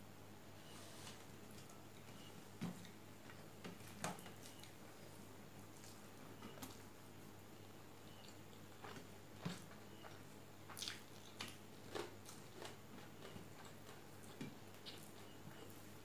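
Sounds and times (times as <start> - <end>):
low steady hum: 0.0 - 16.0
chewing and mouth smacks: 8.1 - 15.6.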